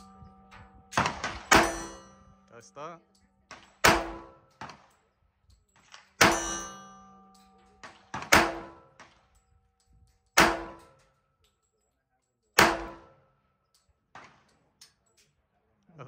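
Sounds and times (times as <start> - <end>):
pistol shots with echo: 0.0 - 2.2, 3.4 - 5.2, 5.8 - 9.4, 10.3 - 11.1, 12.6 - 13.3
metallic ringing: 0.0 - 4.6, 6.2 - 7.8.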